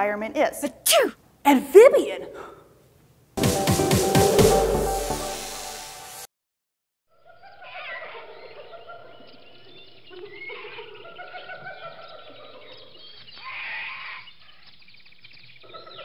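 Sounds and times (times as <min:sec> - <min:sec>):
animal-like calls and chirps: 0:07.2 - 0:16.0.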